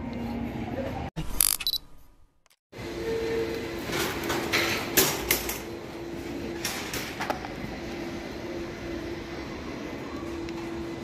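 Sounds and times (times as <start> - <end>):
shopping trolleys clanking: 3.2 - 7.7.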